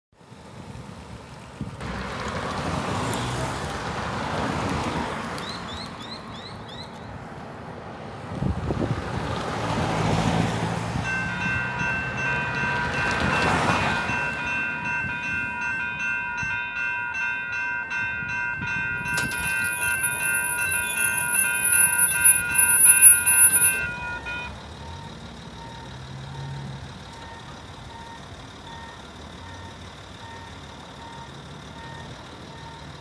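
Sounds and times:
cars passing: 0:00.2 - 0:33.0
crossing warning bells ringing: 0:10.4 - 0:33.0.

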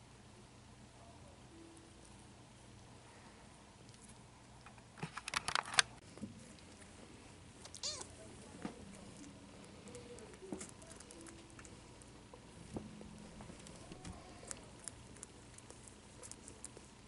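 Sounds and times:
sharp clicks and rustling: 0:03.8 - 0:06.0
cat meowing: 0:07.7 - 0:08.1.

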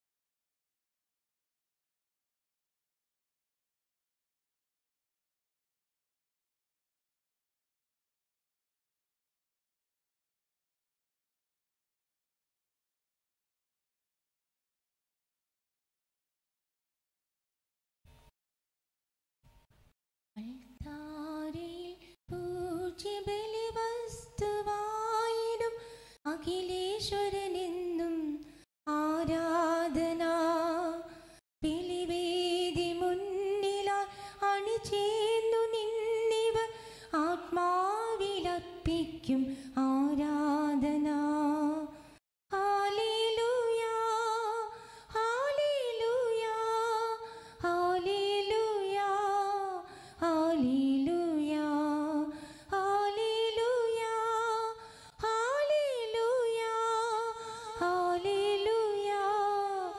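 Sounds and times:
woman singing a hymn: 0:20.4 - 0:41.9, 0:42.5 - 0:59.9.

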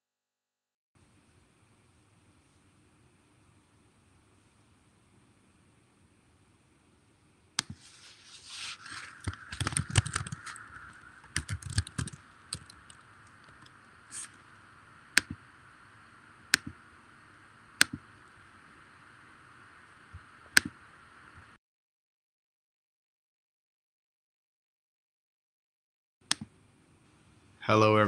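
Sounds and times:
sharp clicks: 0:09.0 - 0:15.5, 0:16.5 - 0:16.8, 0:17.8 - 0:18.3, 0:26.2 - 0:26.5.

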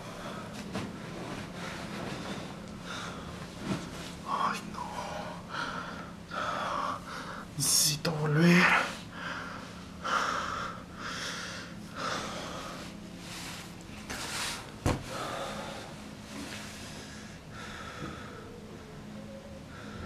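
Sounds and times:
man breathing heavily: 0:00.0 - 0:07.6, 0:08.7 - 0:20.0.

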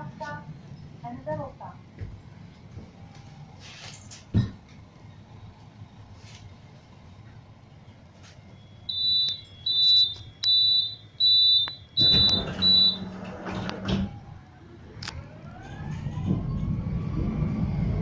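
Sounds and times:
tram motor whine: 0:04.6 - 0:18.0
high two-tone warning beeps: 0:08.5 - 0:13.1
tram doors shutting with thud: 0:11.6 - 0:14.6, 0:15.6 - 0:18.0.

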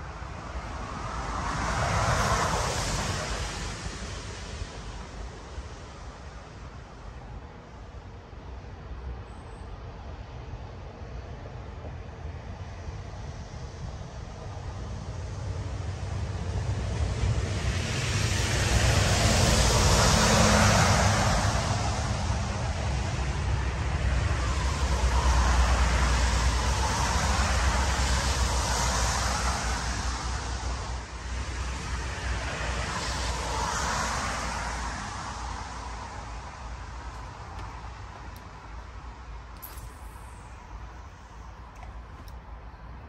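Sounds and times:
wind gusting: 0:18.4 - 0:43.0.

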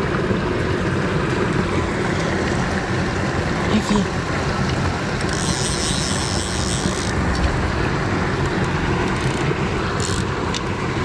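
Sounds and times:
stream rushing over stones: 0:00.0 - 0:11.0
wind buffeting microphone: 0:06.0 - 0:11.0.

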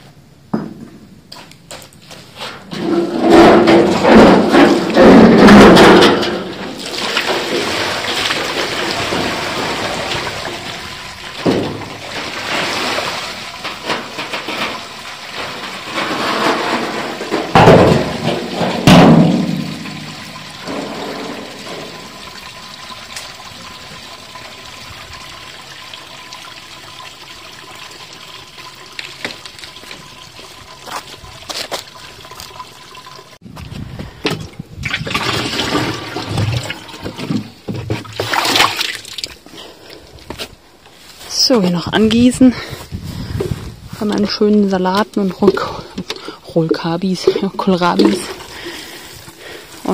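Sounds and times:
thumps: 0:02.6 - 0:10.6, 0:11.3 - 0:22.2
water gushing onto paving stones: 0:06.5 - 0:17.6, 0:19.5 - 0:33.4, 0:44.8 - 0:49.9
water trickling into drain: 0:06.6 - 0:16.0, 0:19.6 - 0:33.4.

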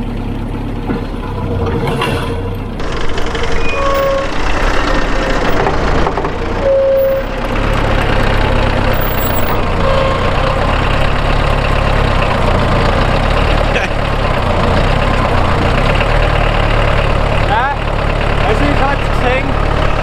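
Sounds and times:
diesel engine running: 0:00.0 - 0:20.0
short squeaks: 0:01.7 - 0:07.4, 0:09.0 - 0:10.7.

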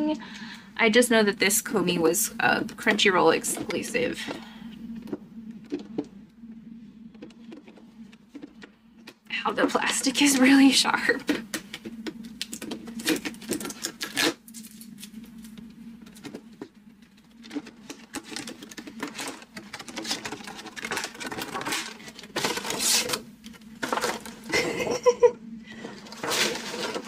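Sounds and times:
plastic packaging crinkling: 0:12.2 - 0:16.4, 0:17.0 - 0:24.5.

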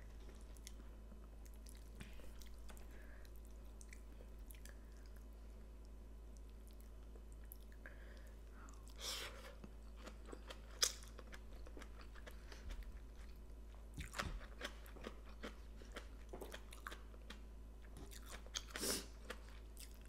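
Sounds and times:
person chewing food: 0:00.0 - 0:20.0.

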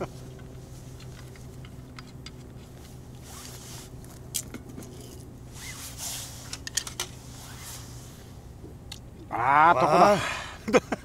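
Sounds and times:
low steady hum: 0:00.0 - 0:11.0
rustling scrapes: 0:02.5 - 0:08.4.

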